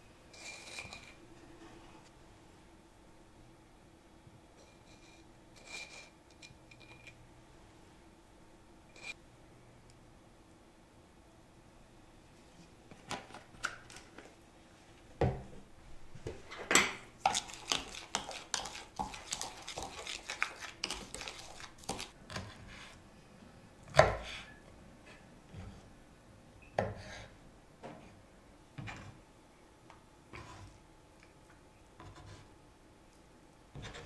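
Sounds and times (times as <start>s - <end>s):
spoon scraping plastic bowl: 0.4s - 1.2s, 4.6s - 6.2s, 17.2s - 23.0s.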